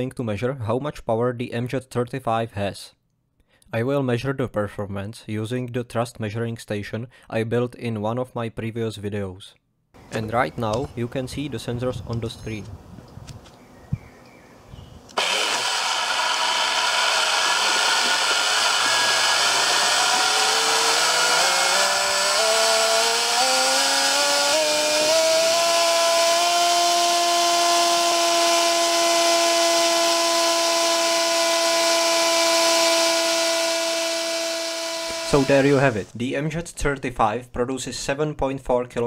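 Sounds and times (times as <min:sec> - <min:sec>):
electric motor whine: 0:15.1 - 0:36.1.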